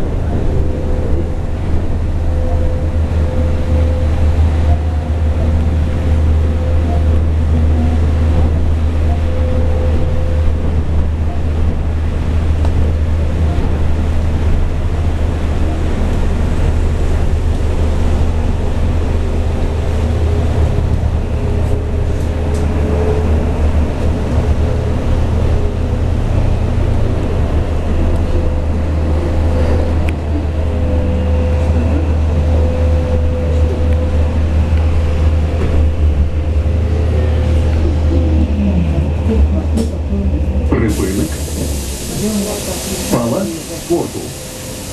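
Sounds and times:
bus cabin low rumble: 0.0 - 44.9
tyres hissing on wet road: 40.7 - 44.9.

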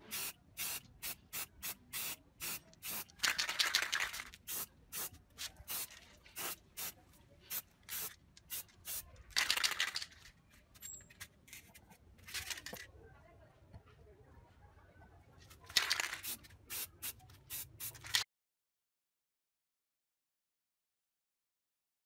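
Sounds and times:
spray paint can hissing: 0.0 - 10.0, 15.7 - 18.2.

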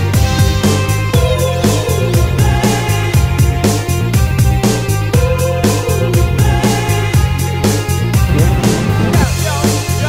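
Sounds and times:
hip-hop drum beat: 8.2 - 9.5.

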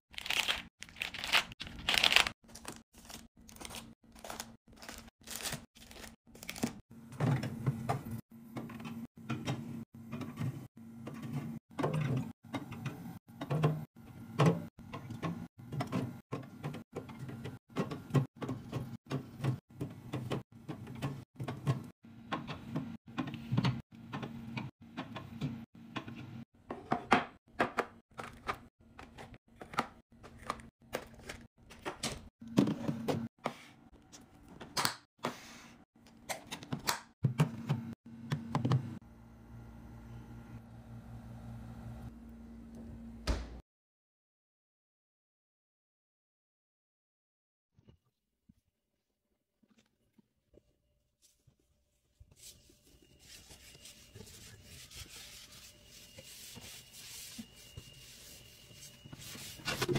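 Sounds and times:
packaging crinkling: 0.1 - 6.8.

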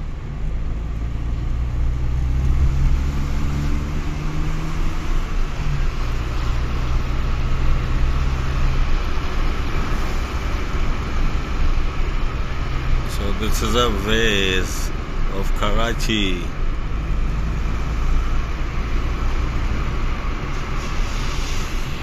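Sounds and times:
car engine hum: 0.0 - 22.0
road and wind noise: 0.0 - 22.0.

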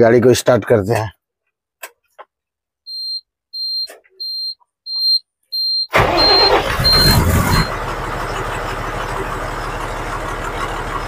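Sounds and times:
dashboard warning buzzer beeping: 2.9 - 7.7
diesel engine cranking and starting: 5.9 - 11.0.

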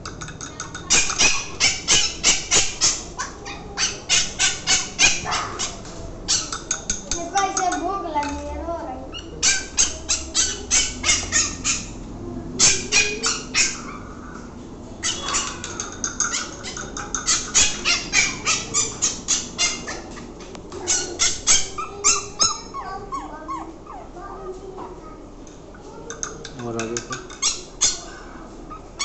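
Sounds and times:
puppy whining: 0.2 - 7.7, 9.0 - 25.0, 25.9 - 29.0
puppy yelping: 0.5 - 7.0, 9.1 - 24.6, 26.2 - 29.0.

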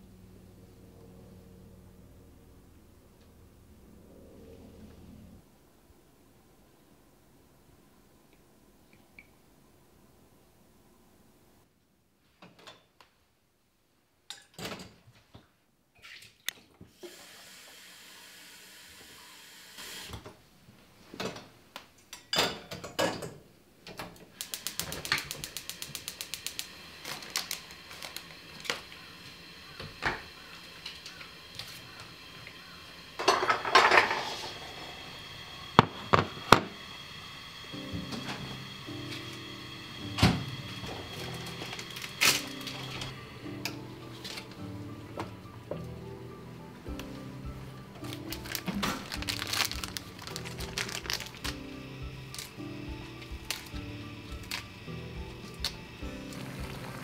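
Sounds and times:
rapid sharp clicks: 24.4 - 26.8
rustling: 48.0 - 51.6.

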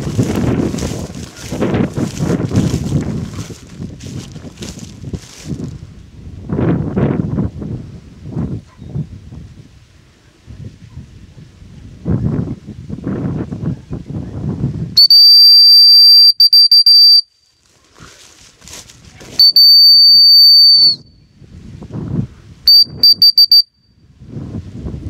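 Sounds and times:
wind buffeting microphone: 0.0 - 15.0, 17.8 - 20.2, 20.9 - 23.2, 24.0 - 25.0
dog whistle blasts: 15.0 - 17.3, 19.4 - 21.2, 22.7 - 23.9
short whistle pips: 15.0 - 17.3, 19.4 - 21.2, 22.7 - 23.9.

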